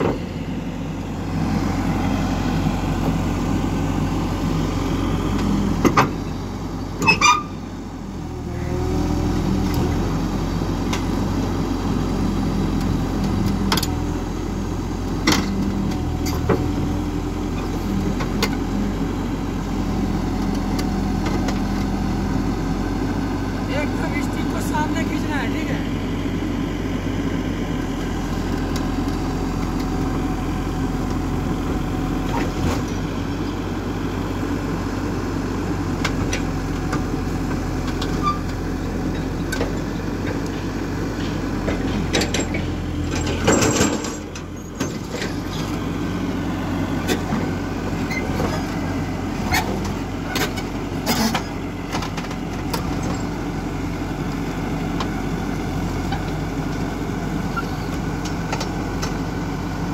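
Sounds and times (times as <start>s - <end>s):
excavator diesel engine running: 0.0s - 59.9s
tracks clanking: 37.8s - 46.1s.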